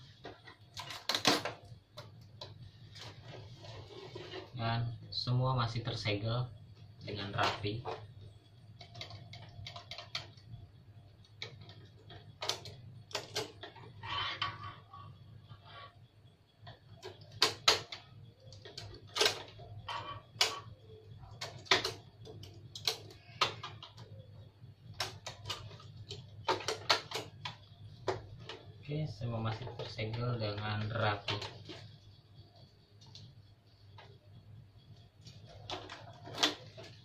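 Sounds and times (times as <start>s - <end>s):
plastic clicks and knocks on printer: 0.1s - 4.4s, 8.8s - 10.6s, 11.2s - 14.7s, 16.6s - 20.7s, 21.3s - 24.3s, 24.9s - 28.8s.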